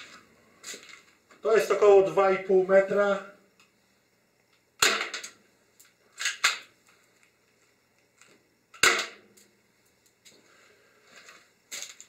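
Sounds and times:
airsoft pistol shot: 8.8s - 9.2s.

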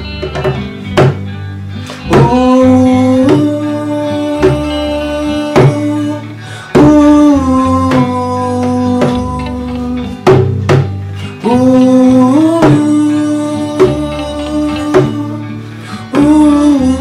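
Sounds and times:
hand drum slapped: 0.2s - 1.3s, 5.5s - 6.0s, 10.2s - 13.1s, 13.7s - 15.4s
man singing held notes: 2.0s - 10.4s, 11.4s - 17.0s.

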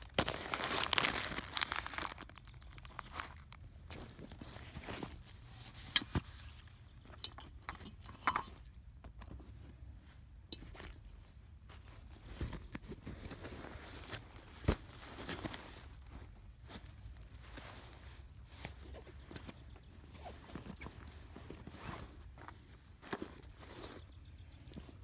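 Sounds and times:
nylon sacks and tarp rustling: 0.0s - 6.6s, 11.7s - 25.0s.

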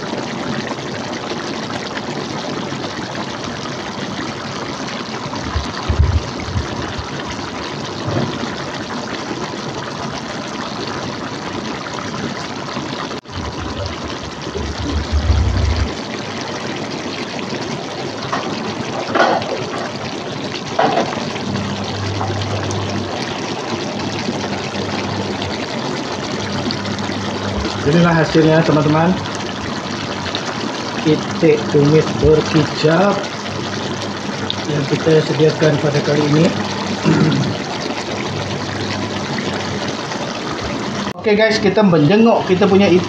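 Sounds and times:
sauce bubbling in a pot: 0.0s - 43.0s
low thumps: 5.4s - 8.4s, 13.4s - 16.0s, 26.5s - 27.9s.

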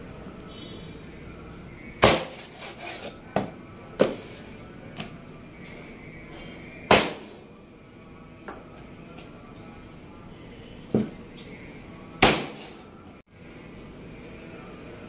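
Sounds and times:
cleaver chopping on wooden board: 2.0s - 2.5s, 6.9s - 7.3s, 12.2s - 12.7s.

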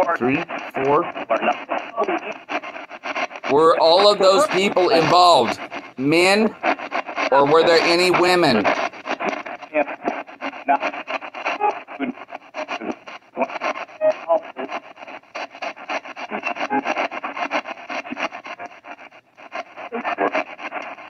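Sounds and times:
broken scraps of broadcast: 0.0s - 21.0s
choppy radio static: 0.0s - 21.0s.

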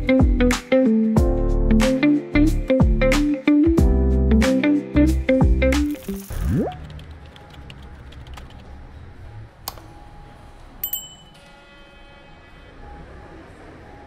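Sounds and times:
click: 9.6s - 9.9s
bell-like chime: 10.8s - 12.4s.

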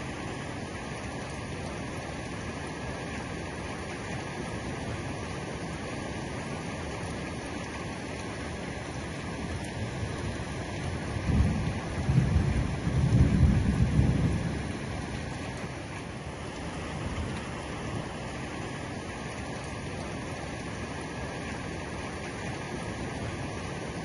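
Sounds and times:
heavy rain: 0.0s - 24.0s
thunder rumbling: 10.8s - 15.6s.

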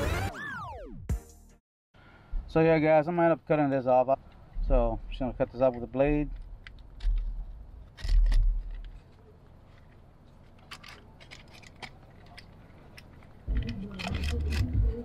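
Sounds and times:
low handling bumps: 4.5s - 8.9s.

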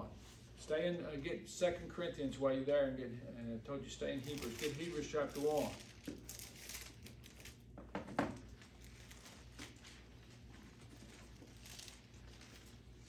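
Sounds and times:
low room hum: 0.0s - 13.0s
book pages rustling and turning: 4.3s - 7.6s.

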